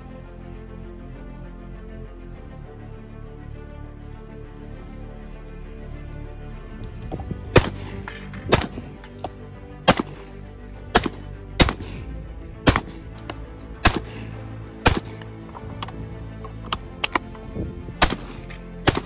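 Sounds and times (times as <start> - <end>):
background music: 0.0 - 19.0
shotgun shots: 7.5 - 15.2, 18.0 - 19.0.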